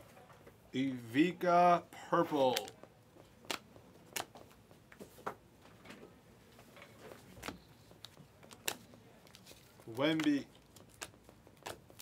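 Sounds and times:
trading cards flipped through: 0:02.4 - 0:02.8, 0:07.1 - 0:12.0.

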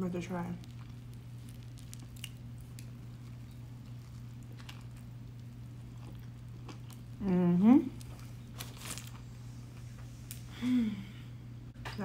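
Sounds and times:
steady low hum: 0:00.0 - 0:12.0
person chewing: 0:00.6 - 0:09.3.

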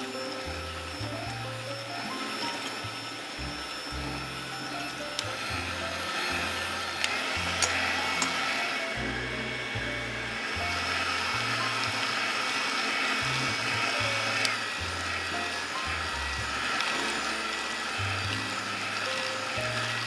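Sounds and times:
electric hand mixer whisking: 0:00.0 - 0:20.0
background music with bass: 0:02.8 - 0:12.1.

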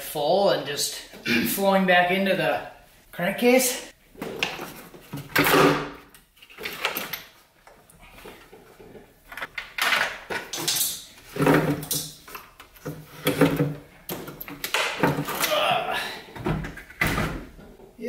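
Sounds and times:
metal parts clunking and rattling: 0:04.2 - 0:15.6.

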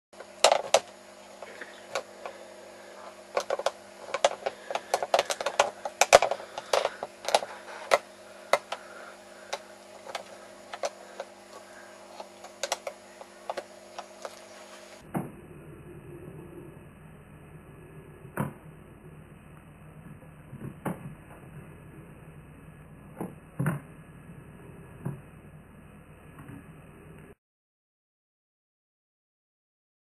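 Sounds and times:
low hum: 0:00.2 - 0:27.4
sharp clicks and taps: 0:03.3 - 0:14.4.

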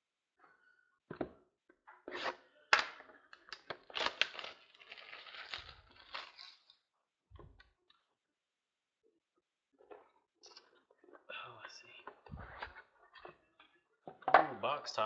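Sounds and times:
wrapping and cardboard tearing: 0:03.5 - 0:06.8.

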